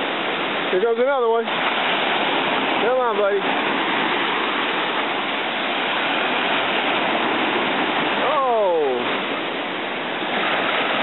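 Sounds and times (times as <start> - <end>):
ocean surf washing up beach: 0.0 - 11.0.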